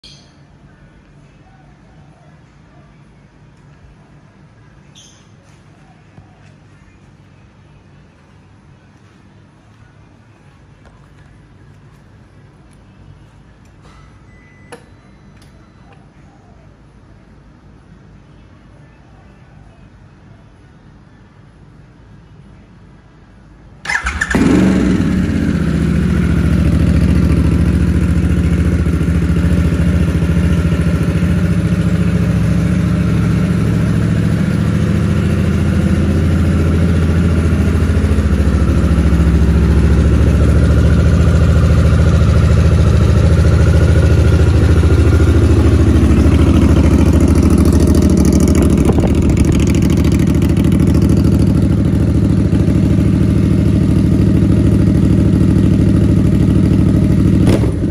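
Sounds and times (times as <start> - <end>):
motorcycle engine starting and idling: 23.8 - 57.9.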